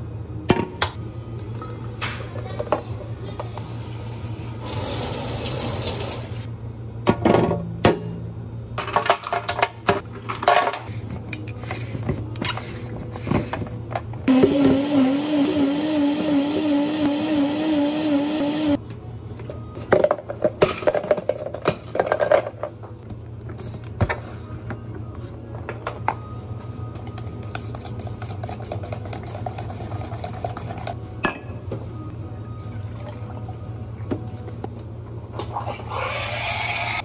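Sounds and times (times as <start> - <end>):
blender motor whining: 14.3 - 18.8.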